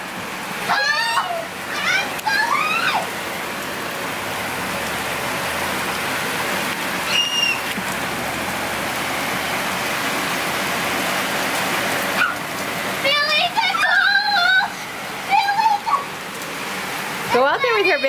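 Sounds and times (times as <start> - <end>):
rain on a wooden deck: 0.0 - 18.0.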